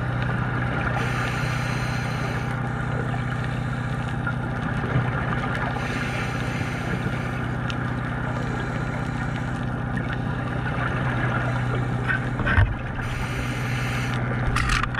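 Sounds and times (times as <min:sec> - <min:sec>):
boat engine heard underwater: 0:00.0 - 0:14.9.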